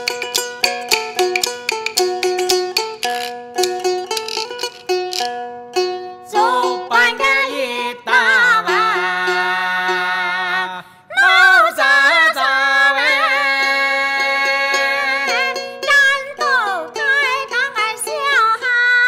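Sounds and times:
bamboo clappers clicking: 0:00.0 - 0:05.4
plucked lute: 0:00.0 - 0:10.5, 0:13.2 - 0:19.0
woman singing long wavering notes: 0:06.2 - 0:12.4, 0:13.1 - 0:19.0.

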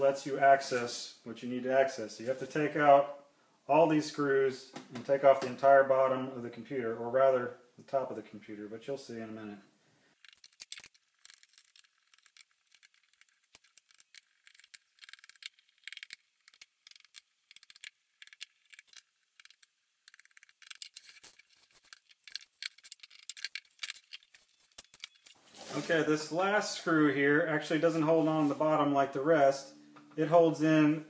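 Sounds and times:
screwdriver clicking and scraping: 0:10.2 - 0:25.4
small screws set down: 0:10.2 - 0:25.4.

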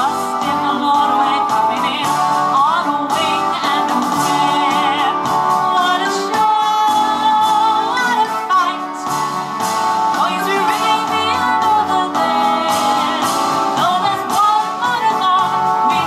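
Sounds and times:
woman singing into microphone: 0:00.0 - 0:09.5, 0:10.1 - 0:16.0
instrumental backing music: 0:00.0 - 0:16.0.

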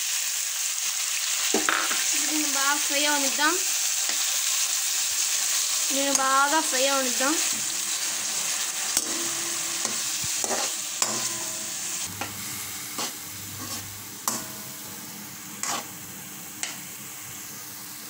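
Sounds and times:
onions sizzling in hot oil: 0:00.0 - 0:18.0
spoon scraping and tapping pan: 0:09.0 - 0:12.4, 0:13.0 - 0:14.7, 0:15.6 - 0:15.9, 0:16.6 - 0:16.8.

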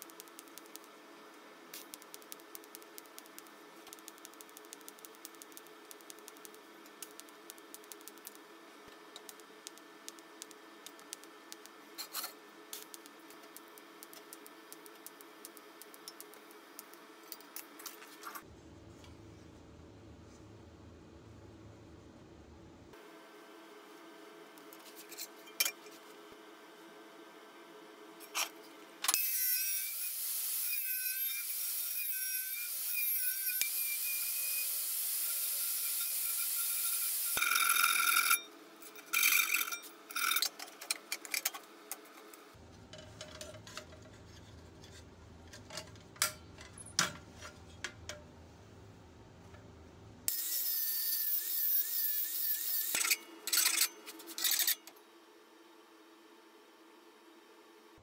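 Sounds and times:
power tool cutting sheet steel: 0:29.2 - 0:38.4, 0:50.3 - 0:53.9.

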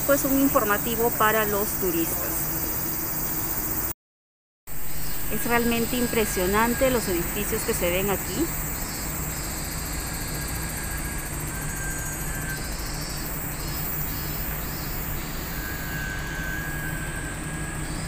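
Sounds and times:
city background hum: 0:00.0 - 0:03.9, 0:04.7 - 0:18.0
insects chirping: 0:00.0 - 0:03.9, 0:04.7 - 0:18.0.

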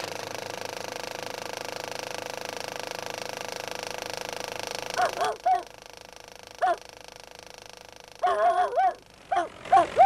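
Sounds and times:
film projector clattering: 0:00.0 - 0:10.0.

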